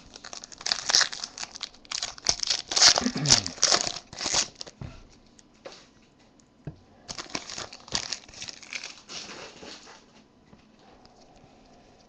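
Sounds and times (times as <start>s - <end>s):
foil wrapper crinkling and tearing: 0.0s - 4.8s, 7.1s - 9.8s.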